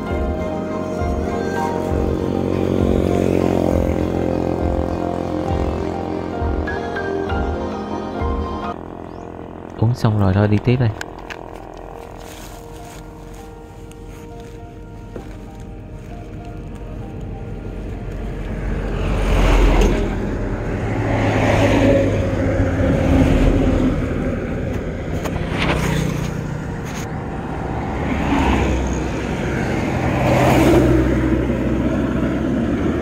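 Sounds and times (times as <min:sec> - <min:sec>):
cloth brushing microphone: 0:11.5 - 0:16.4, 0:25.1 - 0:27.2.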